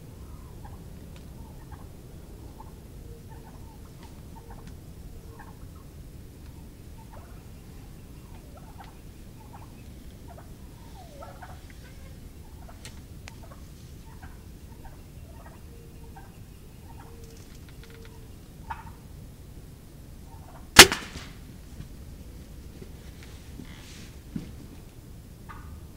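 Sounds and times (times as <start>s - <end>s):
turkeys clucking and purring: 0.0s - 21.0s, 24.8s - 25.9s
bow shot crack: 20.8s - 21.6s.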